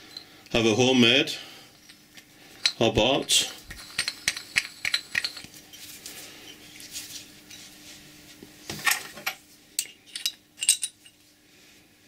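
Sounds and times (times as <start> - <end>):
metal washer and nut clinking: 1.8 - 5.5, 8.8 - 11.2.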